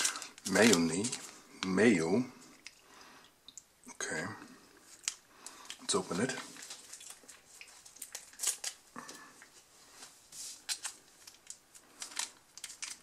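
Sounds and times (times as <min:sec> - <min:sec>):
foil sachet crinkling: 0:00.0 - 0:02.0, 0:04.9 - 0:09.3, 0:10.5 - 0:13.0.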